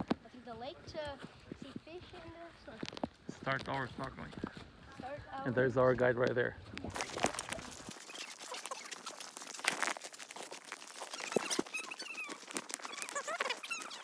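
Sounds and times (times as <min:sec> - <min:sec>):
footsteps crunching on gravel: 0:00.0 - 0:14.0
high squeaks: 0:06.9 - 0:14.0.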